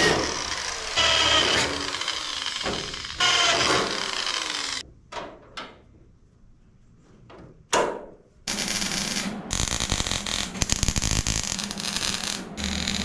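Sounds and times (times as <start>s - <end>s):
arc welding crackling: 0.0s - 4.8s, 8.5s - 13.0s.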